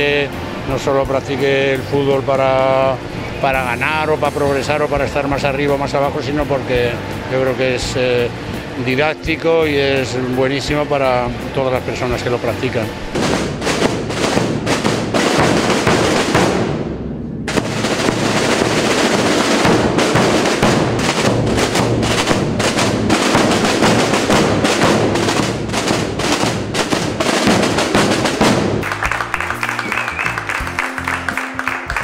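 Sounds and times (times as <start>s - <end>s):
drums rolling: 0.0s - 32.0s
bass drum beats: 10.6s - 31.1s.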